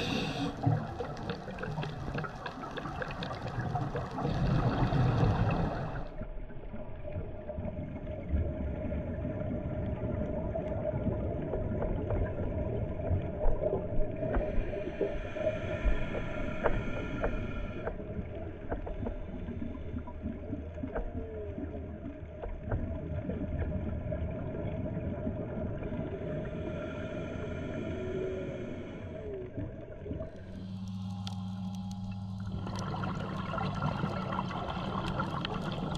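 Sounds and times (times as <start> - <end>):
low underwater drone: 0.0 - 35.9
high whine: 30.3 - 35.9
short gliding tones: 30.4 - 35.8.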